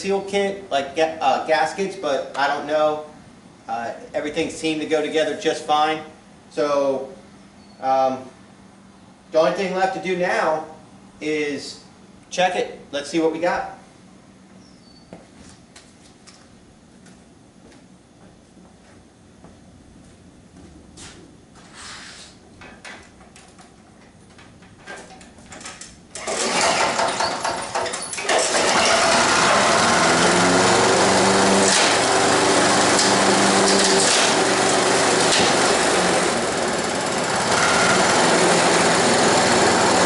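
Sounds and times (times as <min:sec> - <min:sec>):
lawn mower pull-start: 0:24.9 - 0:40.0
lawn mower engine running: 0:26.1 - 0:40.0.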